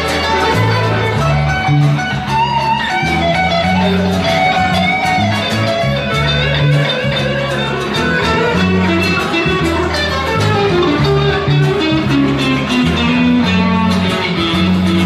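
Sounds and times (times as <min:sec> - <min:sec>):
bass line: 0:00.0 - 0:15.0
guitar: 0:00.0 - 0:15.0.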